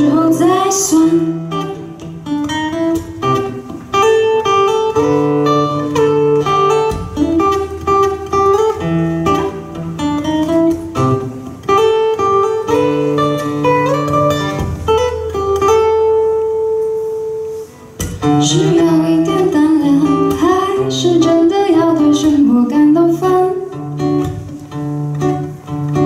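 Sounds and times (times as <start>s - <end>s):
acoustic guitar playing: 0.0s - 26.0s.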